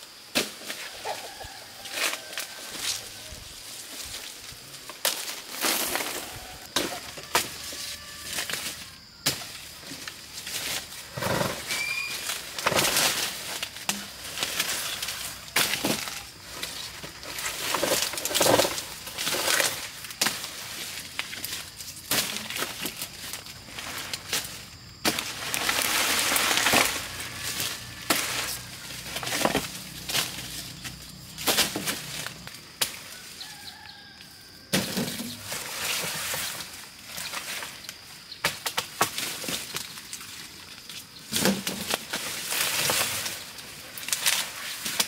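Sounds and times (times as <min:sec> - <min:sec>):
dry leaves rustling: 0:00.1 - 0:45.0
machete chopping cane stalks: 0:00.3 - 0:01.0, 0:04.9 - 0:10.9, 0:11.8 - 0:33.1, 0:38.4 - 0:40.2, 0:41.3 - 0:45.0.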